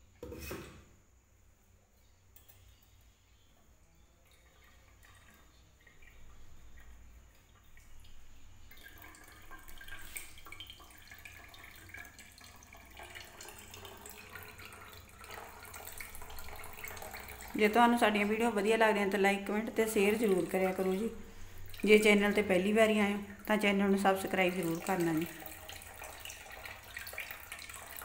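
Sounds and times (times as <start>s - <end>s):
juice trickling into mug: 4.2s - 28.0s.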